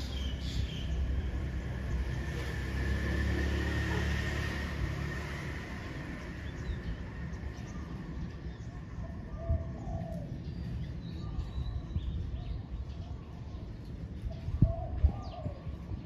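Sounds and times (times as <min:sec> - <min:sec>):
dove cooing: 0:09.0 - 0:10.4.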